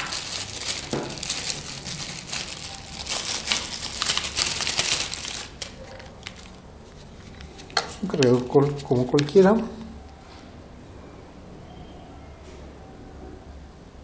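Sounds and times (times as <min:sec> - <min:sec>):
plastic bag crinkling: 0:00.0 - 0:10.2.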